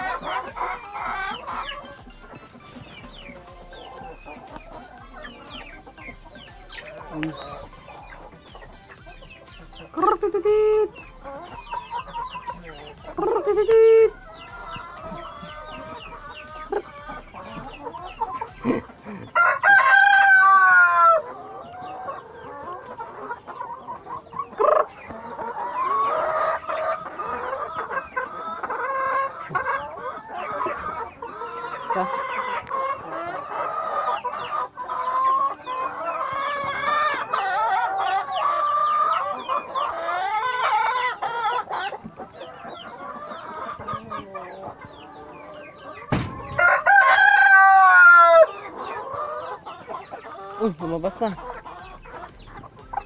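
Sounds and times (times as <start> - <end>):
chicken squawks: 0.0 - 53.0
chickens clucking: 0.0 - 53.0
rooster crowing: 18.6 - 21.4, 45.1 - 48.8.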